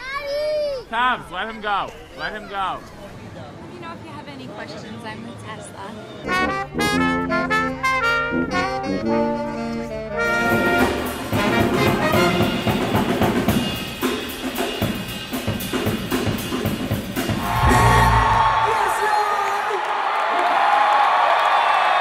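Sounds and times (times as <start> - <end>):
horns playing clear notes: 6.2 - 13.0
brass band playing: 6.2 - 14.3, 17.4 - 18.6
drums and cymbals: 10.3 - 19.0.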